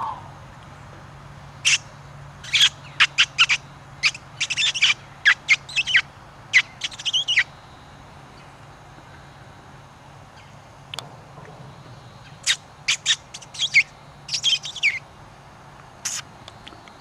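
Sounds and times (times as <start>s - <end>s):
predator call squeals: 0.0s - 0.4s, 2.4s - 7.5s.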